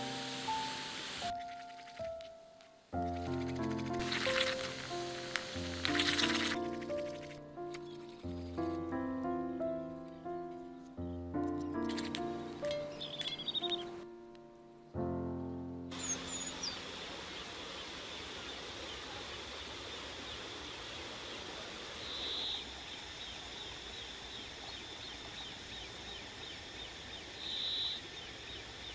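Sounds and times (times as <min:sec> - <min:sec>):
faint bird chirps: 0:11.0 - 0:14.0, 0:16.0 - 0:28.9.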